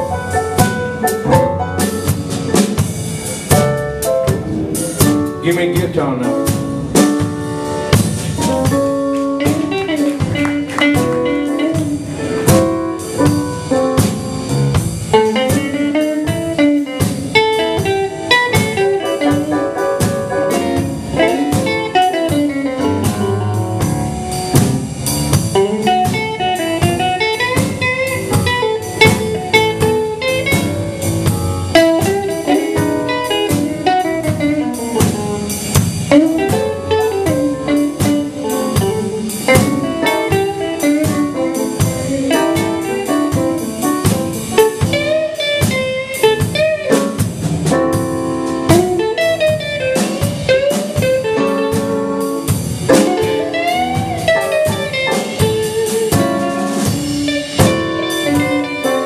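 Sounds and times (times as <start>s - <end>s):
electric guitar bent notes: 0.0s - 59.0s
live blues band playing: 0.0s - 59.0s.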